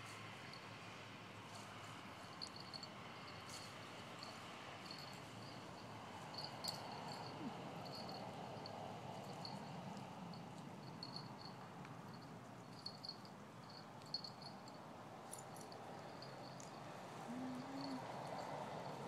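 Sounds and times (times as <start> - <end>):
soft clicks from dogs playing: 1.5 - 17.0
crickets chirping: 2.4 - 19.0
dog whine-growl: 17.3 - 18.1.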